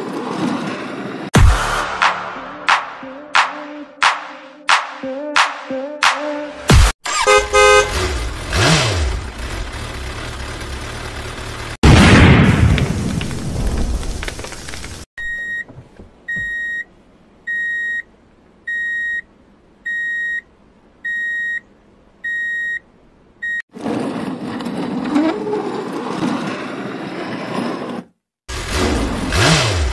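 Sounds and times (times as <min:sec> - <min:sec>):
explosion sound effect: 0:11.8 - 0:14.3
short electronic beeps: 0:16.3 - 0:16.8, 0:18.7 - 0:19.2, 0:19.9 - 0:20.4, 0:21.1 - 0:21.6, 0:22.3 - 0:22.8.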